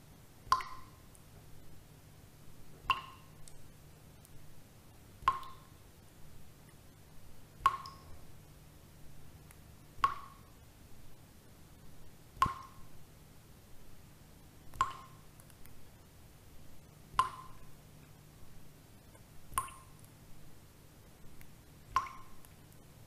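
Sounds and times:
faint low hum: 0:00.0 - 0:23.0
water drops plinking: 0:00.5 - 0:01.0, 0:02.9 - 0:03.4, 0:05.3 - 0:05.7, 0:07.6 - 0:08.2, 0:10.0 - 0:10.5, 0:12.4 - 0:12.9, 0:14.8 - 0:15.2, 0:17.2 - 0:17.7, 0:19.6 - 0:20.0, 0:22.0 - 0:22.5.

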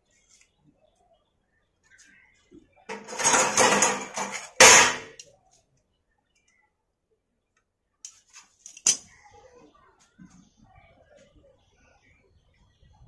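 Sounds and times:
metal tools clattering: 0:02.9 - 0:05.2
sharp metallic clank: 0:02.9 - 0:05.2.

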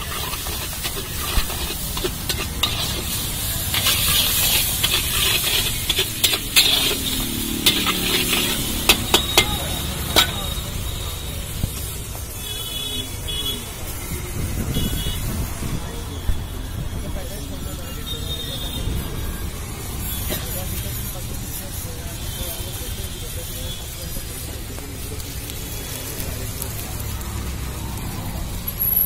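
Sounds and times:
metal spatula scraping iron pan: 0:00.0 - 0:10.6
oil sizzling: 0:00.0 - 0:13.8, 0:19.4 - 0:29.0
low traffic rumble: 0:00.0 - 0:29.0.

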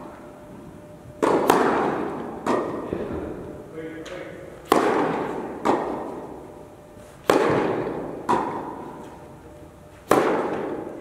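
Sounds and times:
tennis ball struck by rackets: 0:01.2 - 0:02.8, 0:04.6 - 0:06.1, 0:07.2 - 0:08.9, 0:10.0 - 0:10.9.

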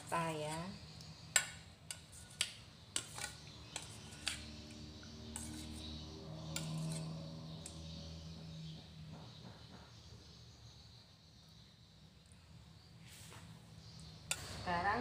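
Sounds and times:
metal spoon scraping steel bowl: 0:00.0 - 0:08.3, 0:14.3 - 0:15.0.

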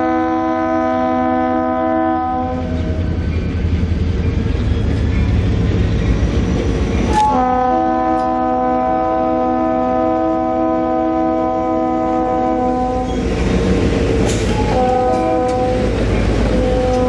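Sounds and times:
locomotive air horn: 0:00.0 - 0:02.8, 0:07.1 - 0:13.2, 0:14.5 - 0:17.0
train rumbling on rails: 0:00.0 - 0:17.0.

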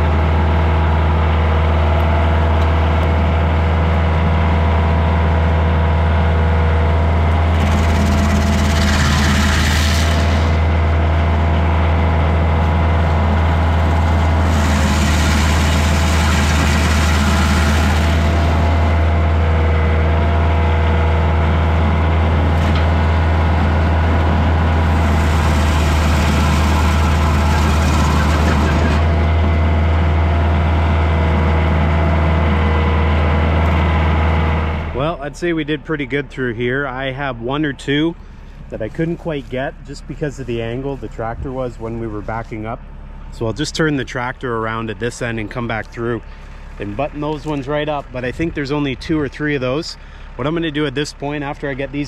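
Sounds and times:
gearbox whine: 0:00.0 - 0:35.6
tractor diesel engine running: 0:00.0 - 0:52.0
stump grinder hissing grinding: 0:07.2 - 0:19.9, 0:22.5 - 0:29.4.

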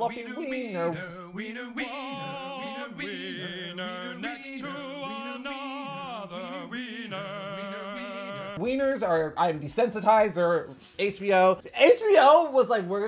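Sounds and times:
person singing long notes: 0:00.8 - 0:08.6.

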